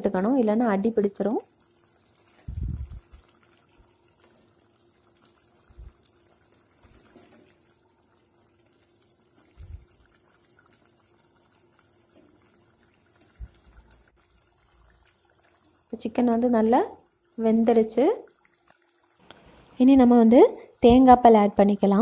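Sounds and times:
curry bubbling: 0:00.0 - 0:22.0.

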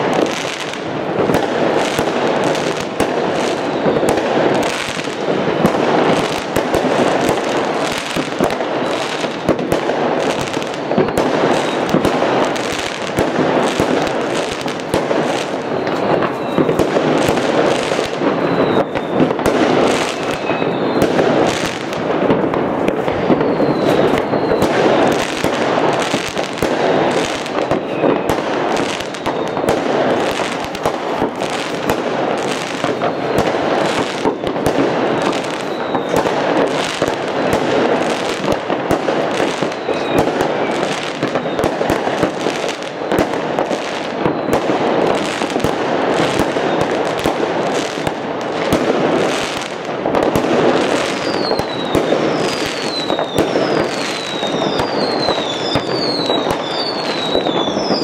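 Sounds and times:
fireworks crackling and banging: 0:00.0 - 0:58.0.

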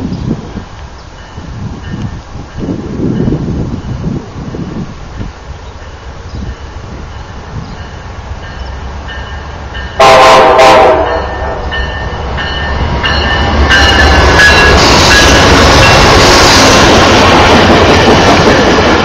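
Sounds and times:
train wheels clattering on rails: 0:01.2 - 0:19.0
train horn blast: 0:10.0 - 0:12.0.

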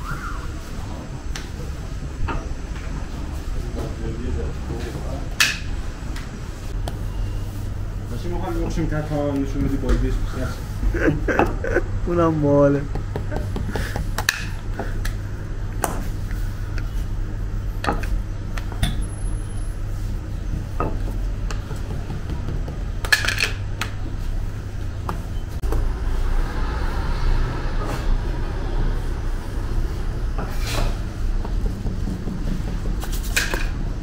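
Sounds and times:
knocks and clatters on dough: 0:08.7 - 0:10.1, 0:12.8 - 0:15.2, 0:20.4 - 0:24.1, 0:30.8 - 0:34.0.

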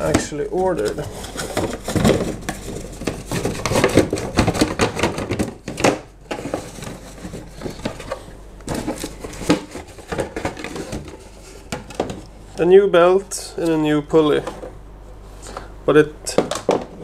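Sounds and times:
cardboard boxes rustling and knocking: 0:00.0 - 0:12.2.

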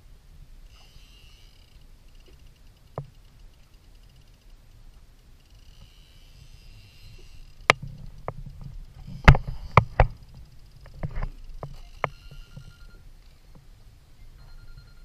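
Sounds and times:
water rumbling against hull: 0:06.7 - 0:11.8.

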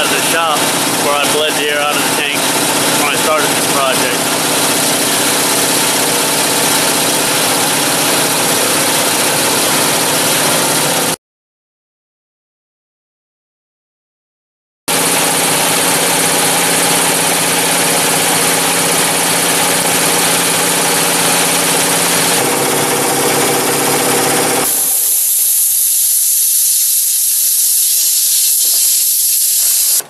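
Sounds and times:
electric air compressor running: 0:00.0 - 0:11.2, 0:14.9 - 0:30.0
loud hiss of escaping air: 0:24.7 - 0:30.0.

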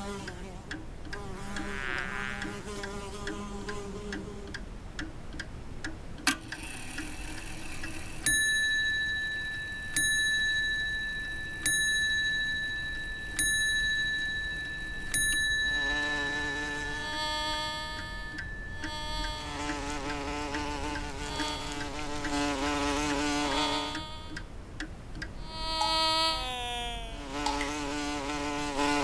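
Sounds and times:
clock ticking: 0:00.0 - 0:26.3
clock striking ringing tone: 0:06.5 - 0:22.5
sharp click: 0:27.4 - 0:27.8.

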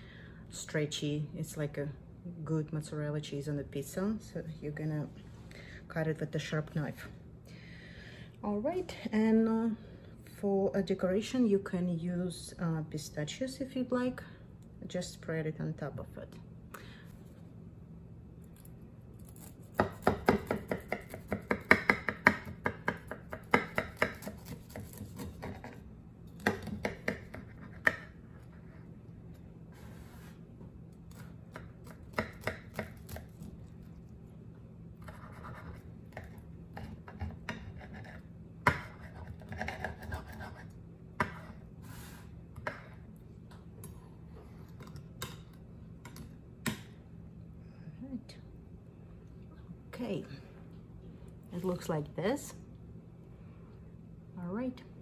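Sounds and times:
knife crunching through pastry crust: 0:23.6 - 0:28.6.

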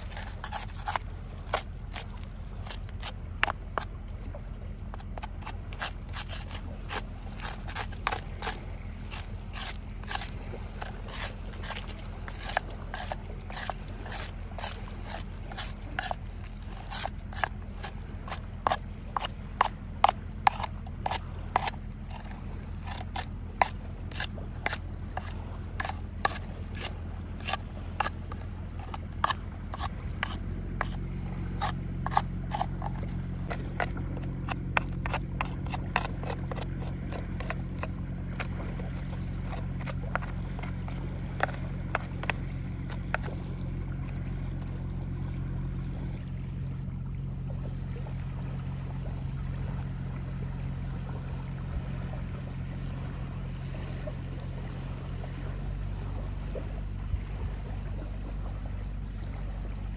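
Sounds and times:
low steady hum: 0:00.0 - 0:59.9
shard scraping metal tube: 0:04.9 - 0:16.2.

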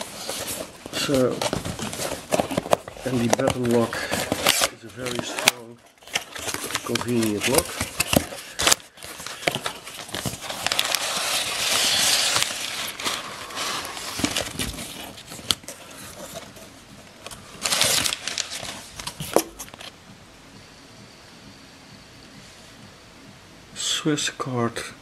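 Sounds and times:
packing paper rustling: 0:00.0 - 0:19.9.

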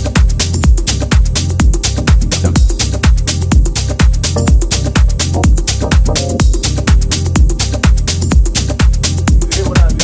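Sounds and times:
four-on-the-floor kick drum: 0:00.0 - 0:10.0
deep sustained bass line: 0:01.4 - 0:07.8.

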